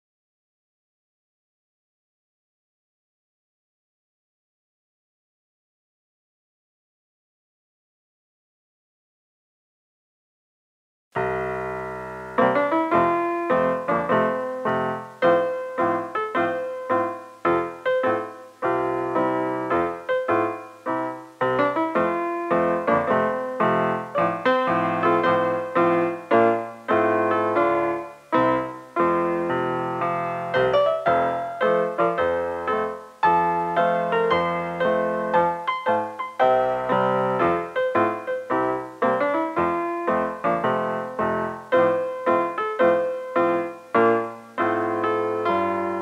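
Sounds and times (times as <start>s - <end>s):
piano music: 11.2s - 46.0s.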